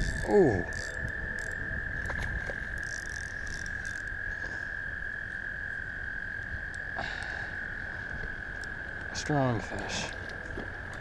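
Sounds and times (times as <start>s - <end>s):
toads trilling: 0.0s - 5.5s.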